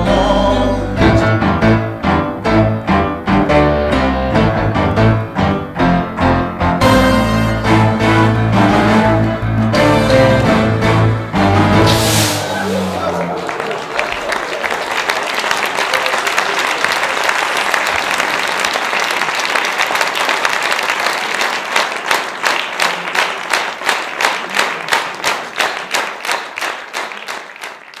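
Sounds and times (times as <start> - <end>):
audience applauding: 12.4 - 28.0
rhythmic clapping in unison: 13.1 - 28.0.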